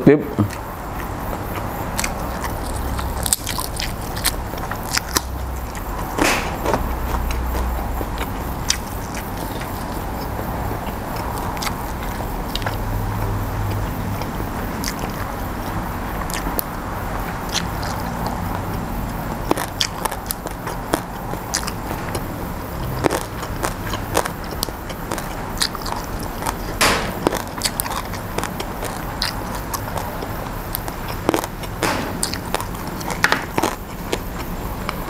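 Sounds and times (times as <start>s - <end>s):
person chewing raw vegetables: 0.5s - 16.7s, 17.4s - 35.0s.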